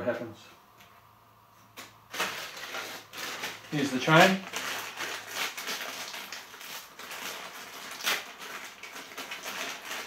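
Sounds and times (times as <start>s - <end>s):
plastic packet rustling: 2.1s - 10.0s.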